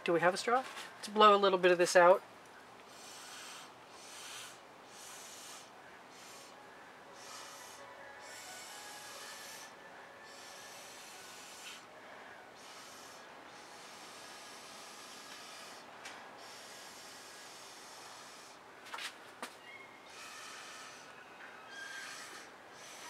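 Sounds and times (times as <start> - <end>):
person blowing airy puffs: 2.9 - 6.6, 7.2 - 18.6, 20.1 - 23.0.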